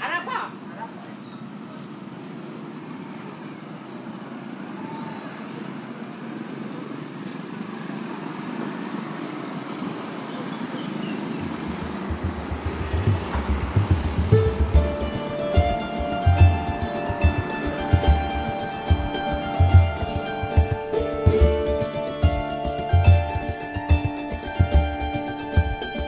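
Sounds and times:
street traffic rumble: 0.0 - 26.0
deep low thumps: 12.0 - 17.4.

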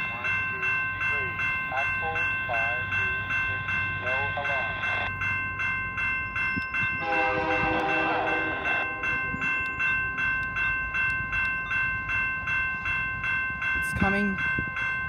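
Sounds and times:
crossing bell ringing: 0.0 - 15.0
train horn: 7.0 - 9.2.

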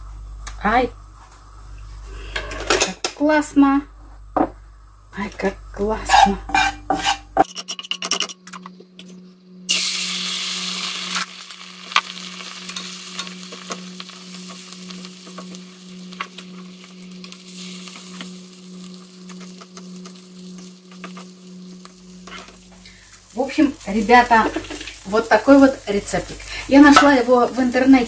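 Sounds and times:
low hum: 0.0 - 28.0
food sizzling in hot oil: 6.0 - 7.4, 9.7 - 28.0.

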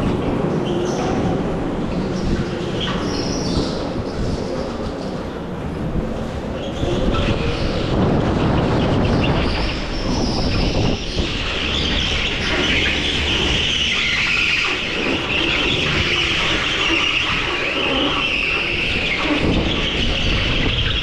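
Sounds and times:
go-kart motor and tyre noise: 0.0 - 21.0.

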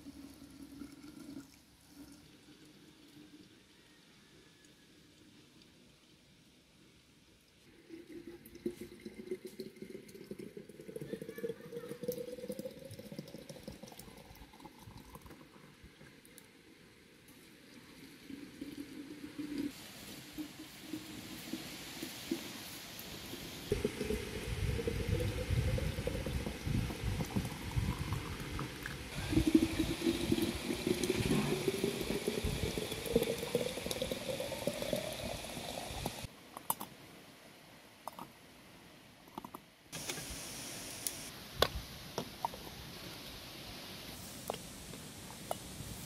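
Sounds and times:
water pouring into glass jars: 0.0 - 3.7, 7.7 - 16.0, 17.9 - 36.3.

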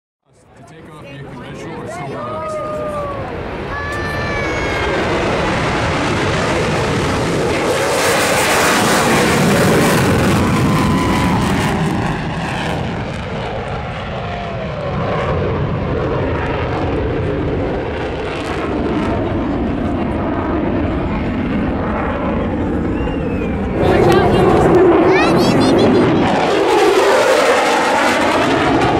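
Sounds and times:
jet taking off roaring: 0.8 - 28.9.

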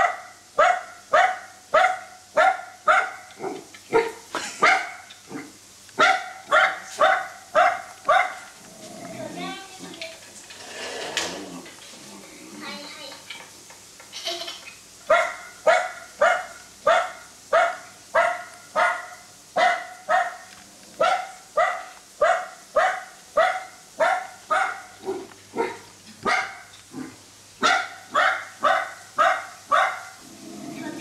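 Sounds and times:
dog barking through speaker: 0.0 - 8.4, 15.1 - 26.7, 27.6 - 30.2.

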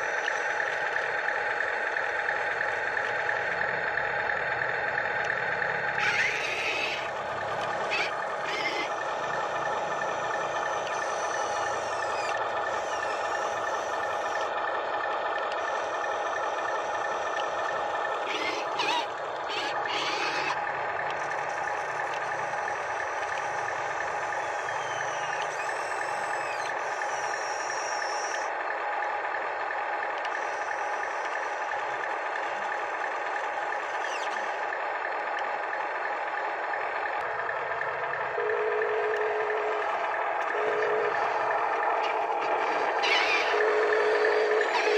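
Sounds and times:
toy motors whining: 0.0 - 28.6, 30.0 - 44.9
buzzing electronic tone: 5.9 - 14.5, 38.1 - 44.9.

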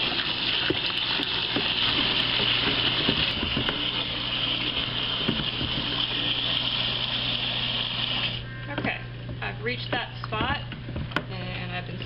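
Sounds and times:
wooden spoon stirring water: 0.0 - 7.3
water running into a plastic bucket: 0.0 - 8.5.

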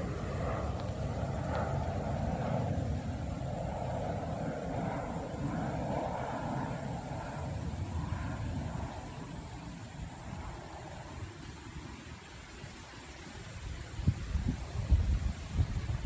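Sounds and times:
distant engine drone: 0.0 - 13.5.

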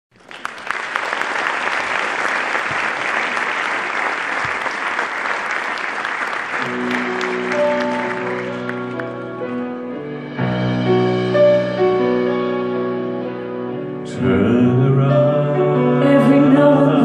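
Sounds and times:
audience applauding: 0.1 - 9.8
soft piano chords: 6.6 - 17.0.

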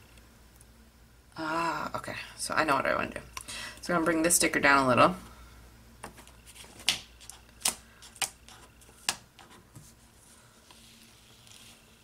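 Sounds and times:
faint paper rustling: 6.0 - 12.0.

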